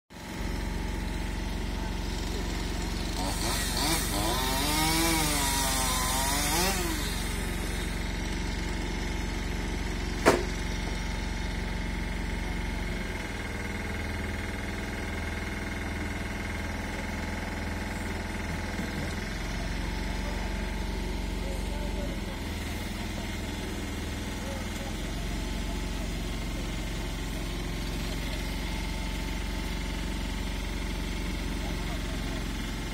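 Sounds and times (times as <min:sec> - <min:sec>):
truck engine running: 0:00.2 - 0:32.9
chainsaw revving: 0:00.3 - 0:32.9
sharp knock: 0:10.2 - 0:10.5.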